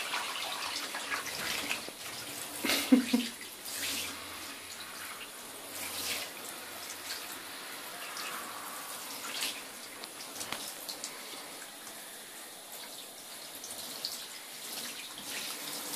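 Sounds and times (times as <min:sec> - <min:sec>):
shower spray hissing: 0:00.0 - 0:15.9.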